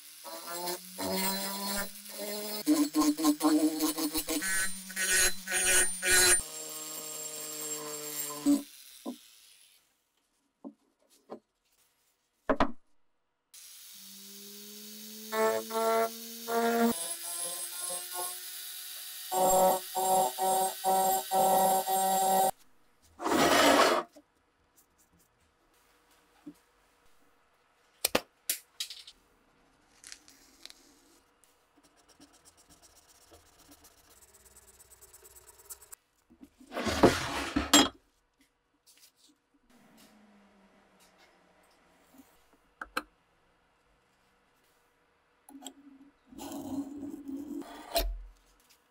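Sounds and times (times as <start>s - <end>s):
rotary tool grinding steel: 0.0s - 9.9s, 13.6s - 22.6s, 32.6s - 36.0s.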